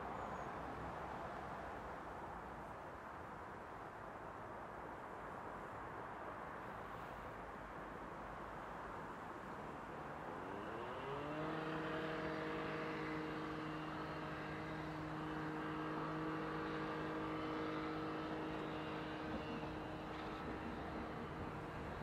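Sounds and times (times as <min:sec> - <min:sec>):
wheels rumbling on track: 0:07.3 - 0:22.0
electric train drive whining: 0:10.3 - 0:22.0.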